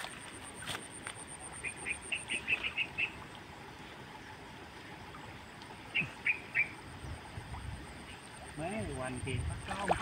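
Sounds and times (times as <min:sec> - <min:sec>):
bird chirping: 0:05.9 - 0:07.2.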